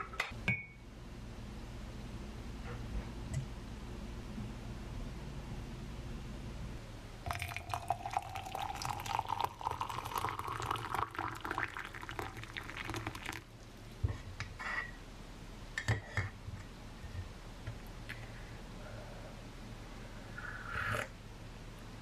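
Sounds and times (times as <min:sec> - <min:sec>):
hot water pouring into a mug: 0:07.3 - 0:13.6.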